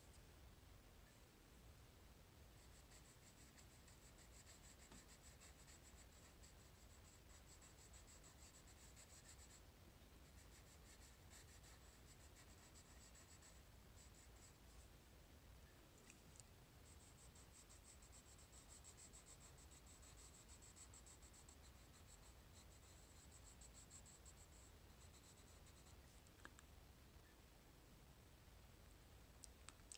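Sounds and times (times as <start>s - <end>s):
pencil scratching on paper: 2.6s - 9.6s, 10.2s - 14.6s, 16.8s - 26.0s.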